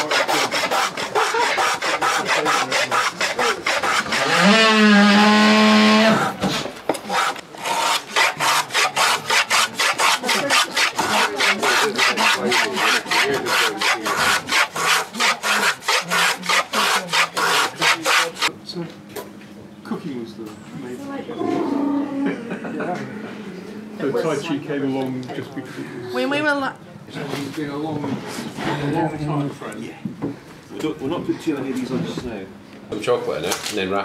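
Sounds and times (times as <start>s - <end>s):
hand tool rasping wood: 0.0s - 18.5s.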